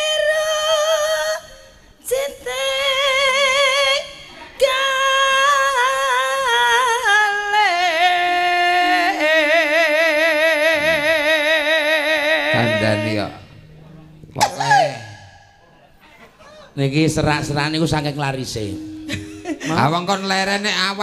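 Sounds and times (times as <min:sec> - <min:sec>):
woman singing unaccompanied: 0:00.0 - 0:13.4.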